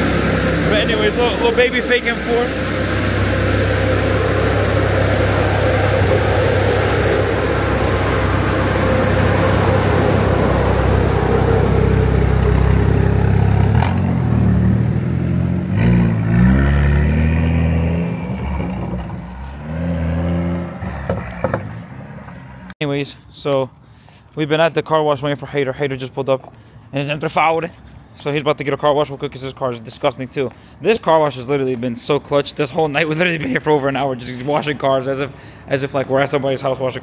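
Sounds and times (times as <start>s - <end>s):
car engine revving: 0.0s - 22.7s.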